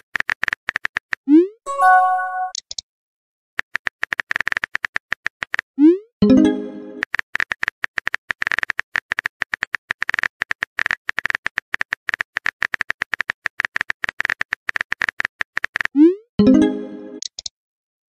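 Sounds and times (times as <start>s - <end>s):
keyboard typing clicks: 6.3s - 17.5s.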